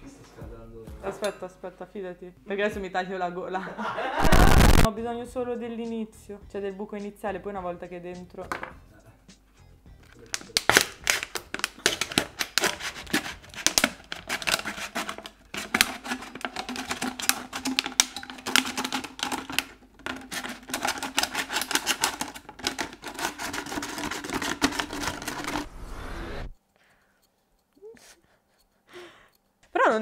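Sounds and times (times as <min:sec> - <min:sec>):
knife crackling plastic bottle: 0:10.0 - 0:25.7.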